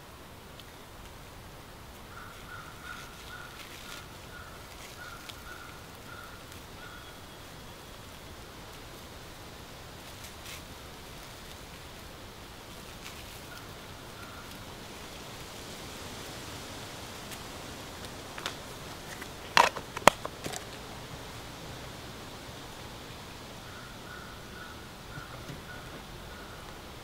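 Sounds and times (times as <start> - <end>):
outdoor background noise: 0.0 - 27.0.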